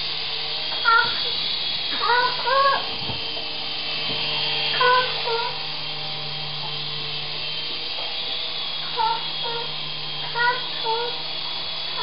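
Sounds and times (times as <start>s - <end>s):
toy helicopter rotors whirring: 0.0s - 12.0s
child calling out high-pitched: 0.8s - 1.4s, 2.0s - 2.9s, 4.8s - 5.6s, 8.9s - 9.7s, 10.3s - 11.2s.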